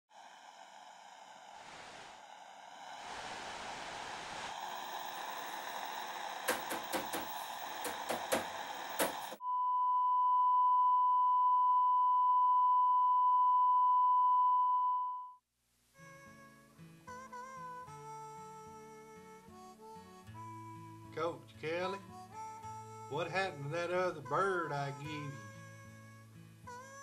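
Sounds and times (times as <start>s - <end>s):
television static hissing: 0.2s - 9.4s.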